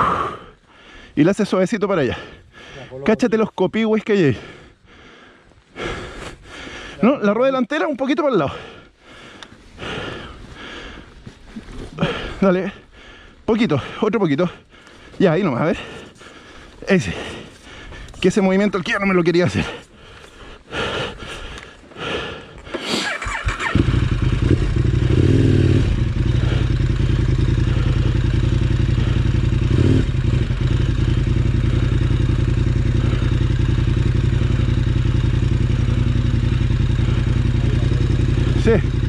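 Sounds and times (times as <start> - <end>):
motorcycle engine starting and idling: 11.8 - 39.0.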